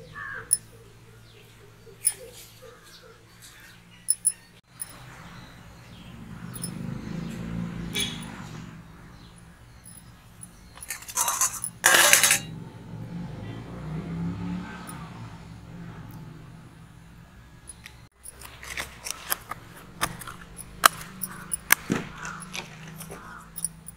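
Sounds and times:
dry noodles crumbling and crackling: 0:18.4 - 0:23.5.

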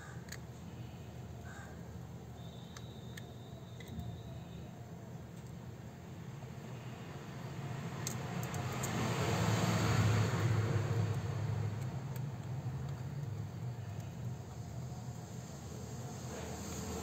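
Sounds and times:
vehicle engine passing by: 0:07.5 - 0:13.6.

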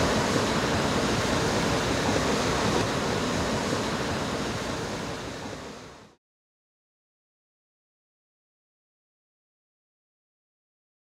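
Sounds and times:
steady rushing noise: 0:00.0 - 0:06.2.

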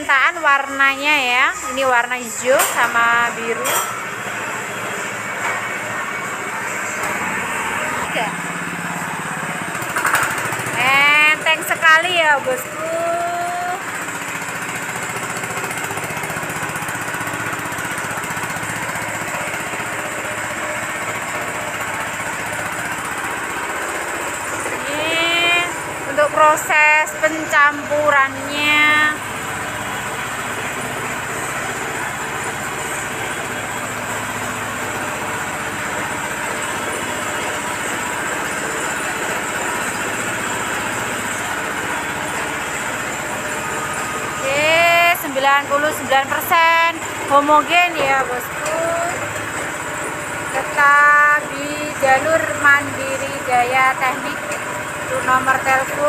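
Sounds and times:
feed mixer churning: 0:00.0 - 0:56.0
small engine running steadily: 0:00.0 - 0:56.0.

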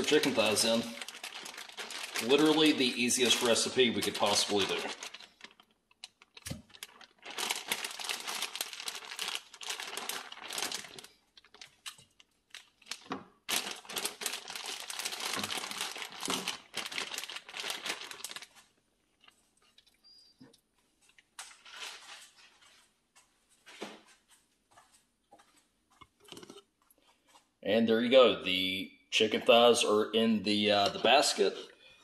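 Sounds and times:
plastic bag crinkling: 0:00.0 - 0:19.3, 0:30.5 - 0:31.7.

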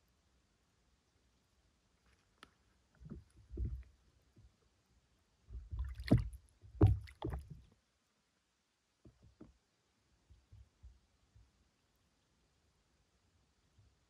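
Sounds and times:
water sloshing and lapping: 0:05.6 - 0:07.8
small splashy ticks: 0:05.8 - 0:07.7.

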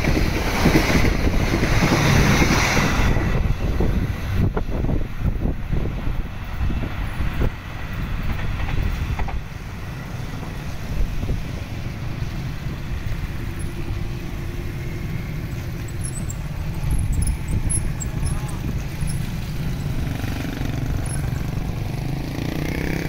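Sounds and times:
motorbike engines at low speed: 0:11.8 - 0:23.0.

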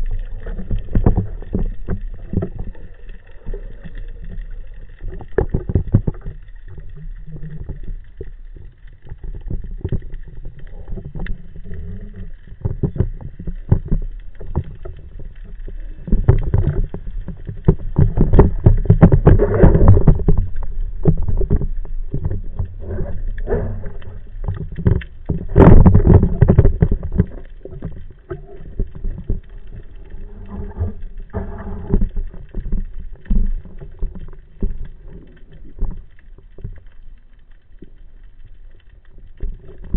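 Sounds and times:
water rushing underwater: 0:00.0 - 0:39.9
sharp clicks and knocks: 0:16.0 - 0:29.8.

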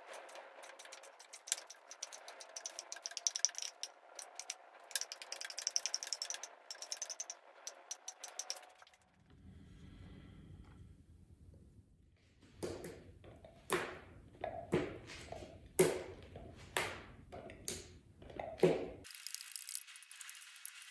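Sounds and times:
stick rattling against paint can: 0:00.0 - 0:08.9, 0:18.4 - 0:20.9.

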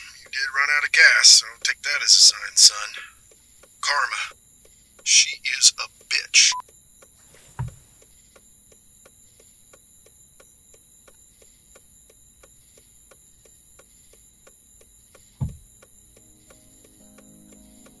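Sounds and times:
low thud: 0:07.5 - 0:07.8, 0:15.4 - 0:15.7
hazard-light flasher ticking: 0:08.0 - 0:18.0.

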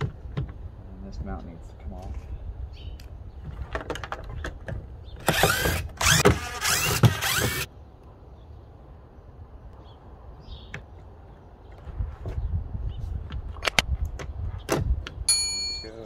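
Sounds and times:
cordless power driver whirring: 0:05.2 - 0:07.7.

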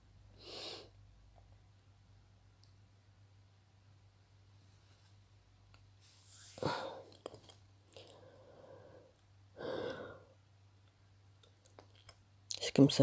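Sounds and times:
faint low hum: 0:00.0 - 0:13.0
woman breathing out: 0:08.0 - 0:10.4.

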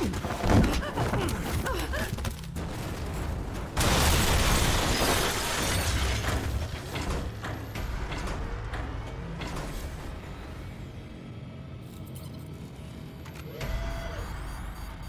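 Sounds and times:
clattering debris: 0:00.0 - 0:10.2
heavy mechanical clanking: 0:02.6 - 0:11.0.

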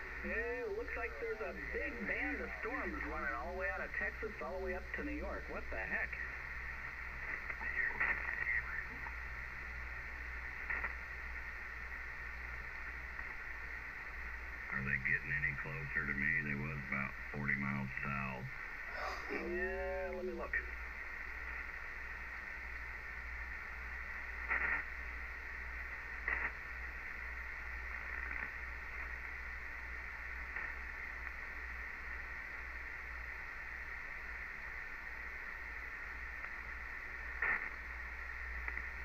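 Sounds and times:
low hum: 0:00.0 - 0:39.0
radio crackles: 0:00.0 - 0:39.0
radio static: 0:00.0 - 0:39.0.

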